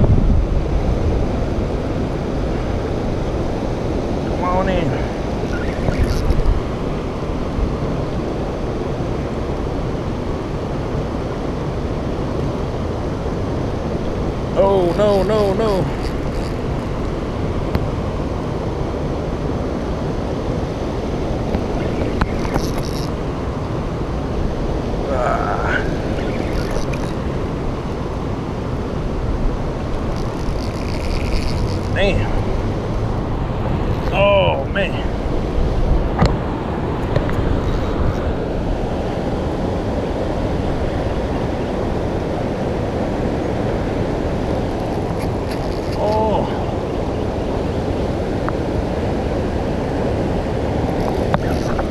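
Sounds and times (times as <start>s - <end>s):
wind rumble on microphone: 0.0s - 51.9s
faint ticks: 5.5s - 6.6s, 15.9s - 17.1s, 21.5s - 23.1s, 26.2s - 27.2s, 29.9s - 32.0s, 44.7s - 46.2s, 51.0s - 51.9s.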